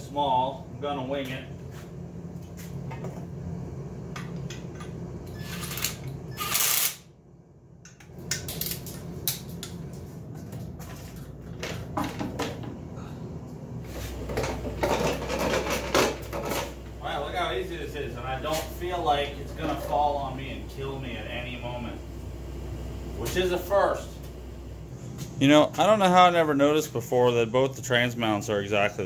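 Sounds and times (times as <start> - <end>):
low hum: 0.0 - 29.0
ratchet clicks: 5.6 - 7.0
cordless driver burst: 5.8 - 7.1.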